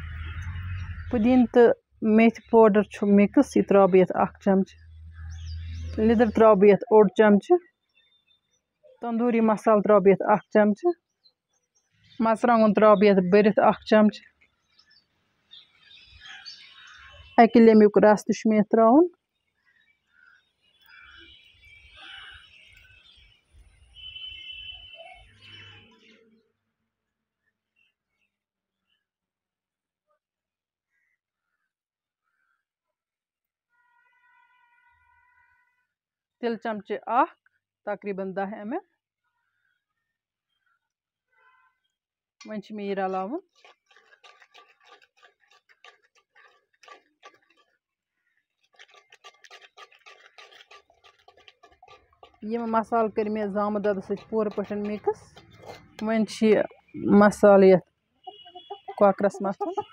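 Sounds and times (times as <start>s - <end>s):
birds chirping: 0.0s - 18.6s, 19.4s - 26.4s, 42.6s - 59.9s
metal spoon scraping metal bowl: 43.0s - 47.8s, 48.6s - 57.4s
lemon squelching when squeezed: 43.0s - 57.4s.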